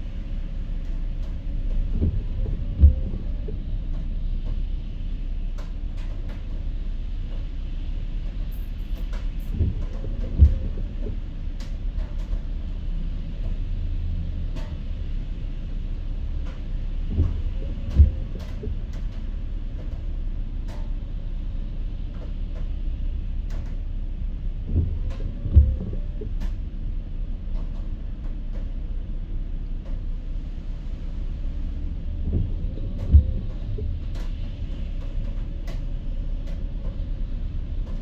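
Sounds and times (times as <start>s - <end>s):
car road and engine rumble: 0.0s - 38.0s
windshield wipers thumping: 0.8s - 6.5s, 9.0s - 13.6s, 16.3s - 22.9s, 23.5s - 26.6s, 31.5s - 38.0s.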